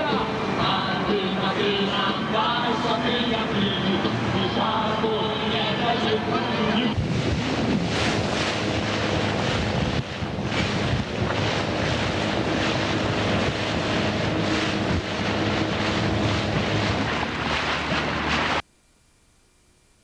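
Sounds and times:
boat engine running: 0:00.0 - 0:18.6
wind buffeting microphone: 0:06.9 - 0:18.6.

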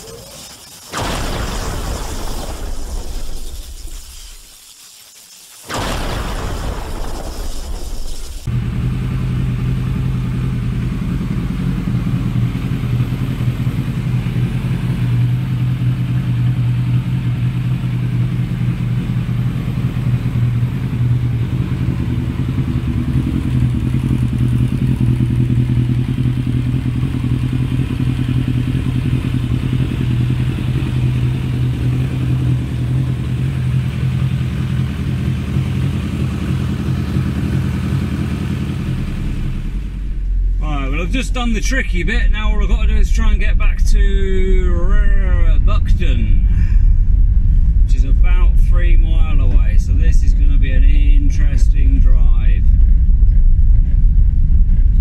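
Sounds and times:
motorcycle engine idling: 0:08.5 - 0:41.2.

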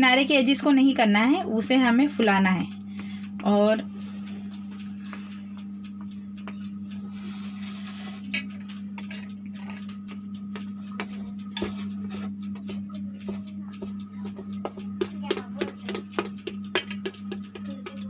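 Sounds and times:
steady low hum: 0:00.0 - 0:18.0
fork tapping baking tray: 0:07.2 - 0:18.0.

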